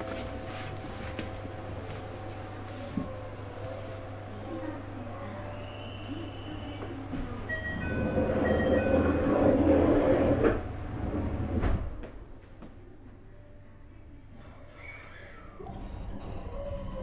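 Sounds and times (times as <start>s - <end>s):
train motor and wheel noise: 0.0s - 12.2s
electric train inverter tones: 5.2s - 11.6s.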